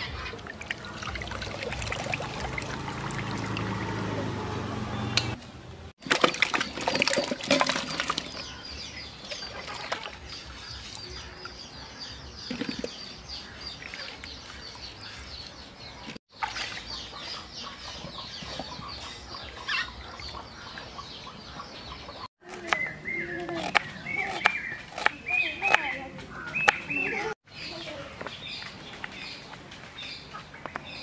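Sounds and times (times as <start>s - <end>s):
water splashing in steel basin: 0.2s - 4.0s, 6.0s - 8.5s, 9.3s - 11.1s, 16.3s - 17.1s.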